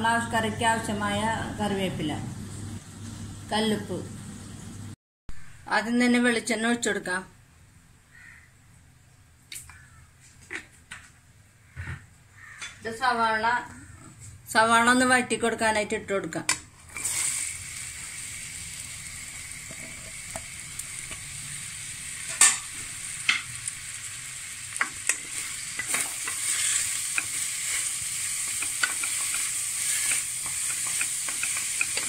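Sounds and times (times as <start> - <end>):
onions sizzling in oil: 16.8 - 32.0
wooden spatula scraping pan: 25.1 - 32.0.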